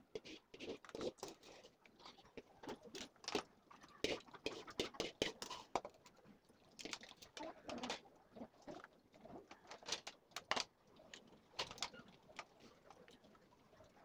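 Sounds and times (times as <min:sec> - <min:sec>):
small clicks and taps of handling: 0:09.5 - 0:13.2.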